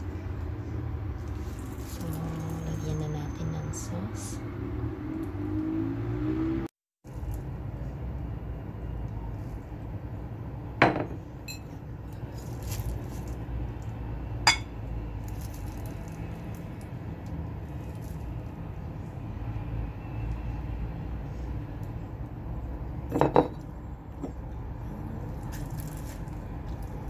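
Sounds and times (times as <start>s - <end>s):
low background hum: 0.0s - 5.3s, 7.1s - 27.0s
bottles clinking against bowl: 14.5s - 14.7s.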